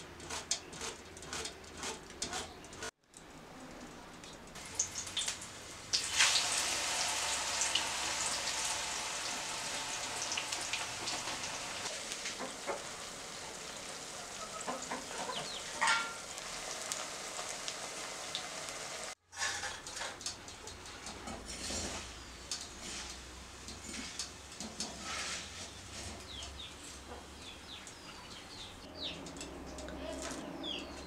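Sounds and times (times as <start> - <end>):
oil sizzling in a wok: 4.6 - 19.5.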